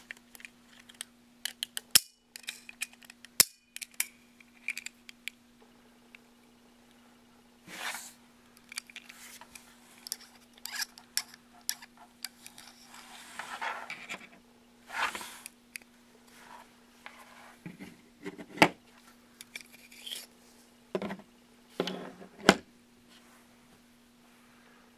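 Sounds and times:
plastic parts clicking and scraping: 0.0s - 5.4s, 8.6s - 14.4s.

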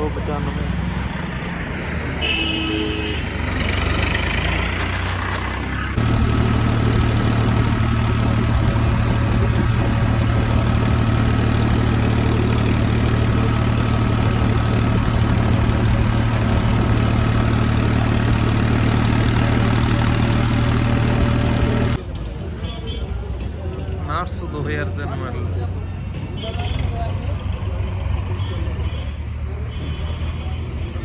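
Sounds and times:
tractor diesel engine droning: 3.4s - 22.0s.

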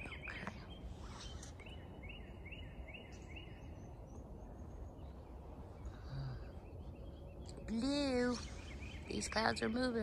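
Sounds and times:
low outdoor background noise: 0.0s - 10.0s
small bird chirping: 0.0s - 10.0s.

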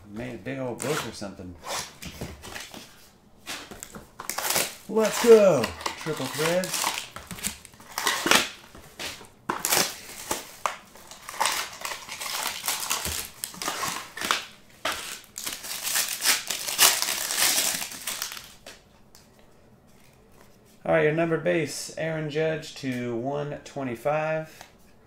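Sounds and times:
foil wrapper tearing and crinkling: 4.2s - 8.6s, 9.5s - 18.7s.

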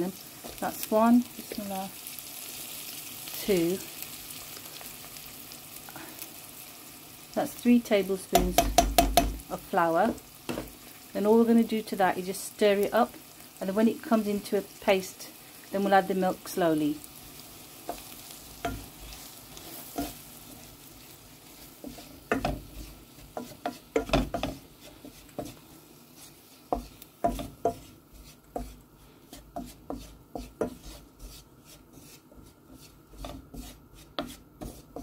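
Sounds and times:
faint sizzle: 0.0s - 35.0s
spatula scraping frying pan: 15.8s - 35.0s.

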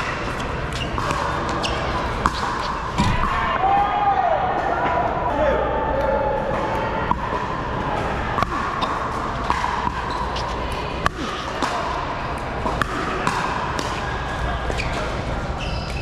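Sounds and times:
paddles hitting pickleball: 0.0s - 3.8s, 6.4s - 16.0s
steady background noise: 0.0s - 16.0s.

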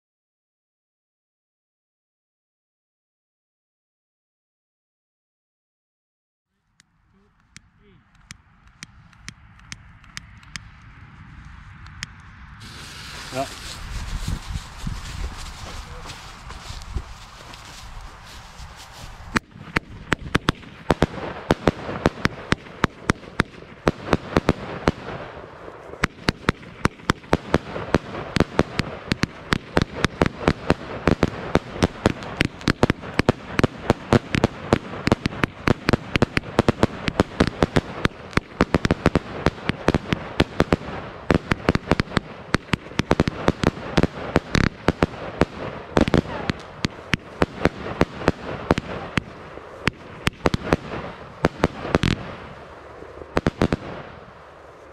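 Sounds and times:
firework battery bangs: 12.6s - 18.0s
rushing hiss: 12.6s - 19.3s.

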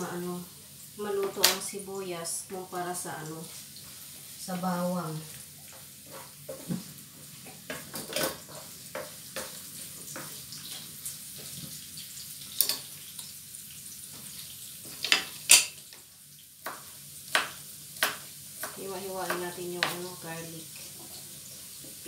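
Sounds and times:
onions sizzling in oil: 0.0s - 22.0s
spatula scraping a pan: 5.7s - 6.7s, 7.7s - 10.4s.

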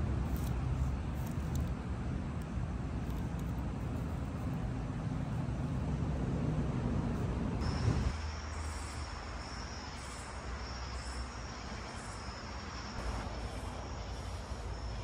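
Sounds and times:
insects trilling: 7.6s - 15.0s
pulsing insect call: 7.6s - 15.0s.

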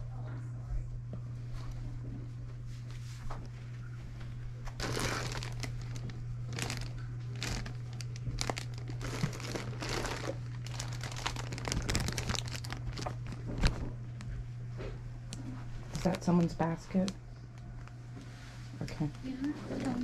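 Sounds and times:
plastic bags crinkling: 4.7s - 14.0s, 15.9s - 17.1s, 19.7s - 20.0s.

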